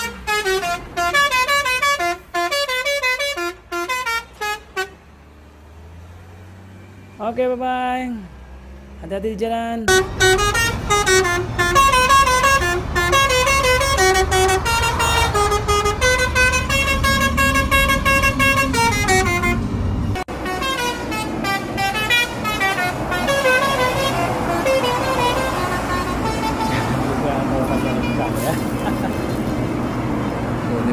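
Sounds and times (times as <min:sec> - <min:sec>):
multi-tone air horn tune: 0:00.0 - 0:05.0, 0:09.9 - 0:27.0
engine and road rumble: 0:00.0 - 0:30.9
traffic noise: 0:00.0 - 0:30.9.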